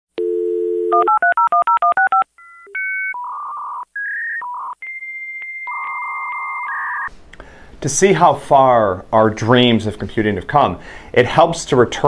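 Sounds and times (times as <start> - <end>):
dial tone: 0.2 - 7.1
touch-tone digits: 0.2 - 7.1.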